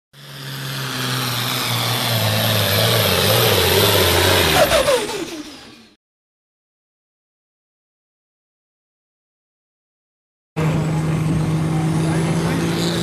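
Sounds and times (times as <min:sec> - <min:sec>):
tractor engine running: 0:00.2 - 0:06.0, 0:10.6 - 0:13.0.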